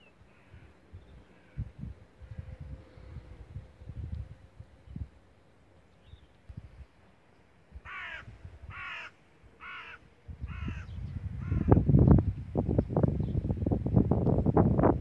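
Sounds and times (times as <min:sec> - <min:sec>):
wind buffeting microphone: 0:00.5 - 0:05.3, 0:07.7 - 0:09.0, 0:10.1 - 0:15.0
crow cawing: 0:07.8 - 0:11.8.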